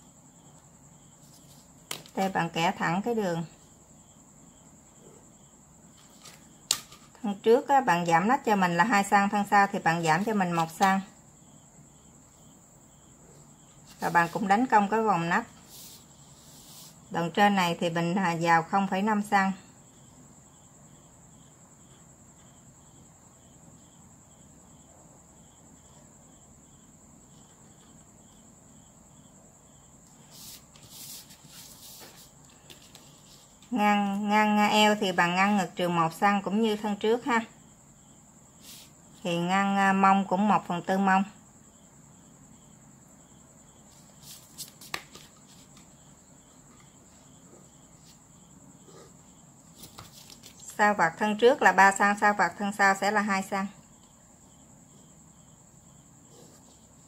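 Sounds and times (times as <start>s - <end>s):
cricket chirping: 0.0s - 57.0s
paper rustling: 6.0s - 7.2s, 30.3s - 33.7s, 44.0s - 45.9s, 49.6s - 50.7s.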